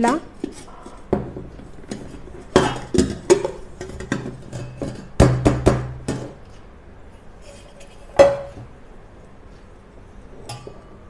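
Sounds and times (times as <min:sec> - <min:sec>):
knocking on metal tin: 0:01.1 - 0:06.4.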